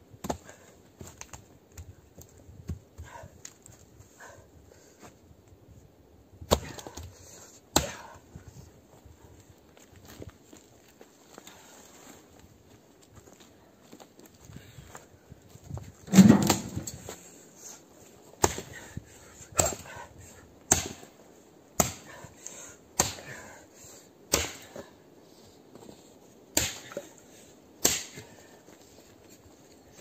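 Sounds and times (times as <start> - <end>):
axe chopping into branch: 6.5 - 7.0, 20.7 - 21.1, 21.8 - 22.1, 23.0 - 23.3, 24.3 - 24.8, 26.5 - 27.0, 27.8 - 28.2
heavy thud: 16.1 - 17.0.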